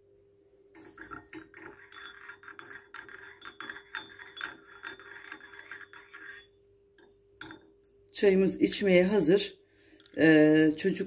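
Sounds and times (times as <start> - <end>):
teaspoon clinking in ceramic cup: 0.9 - 6.6, 7.4 - 7.8.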